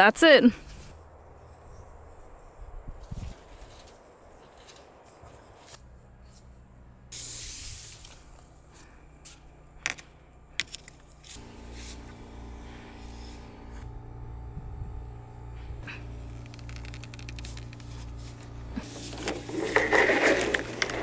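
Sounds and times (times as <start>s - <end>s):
low steady hum: 0.0s - 21.0s
scraping and rustling of conduit: 3.0s - 6.6s, 15.6s - 21.0s
brief hiss: 7.1s - 8.4s
sharp clicks: 16.4s - 17.9s.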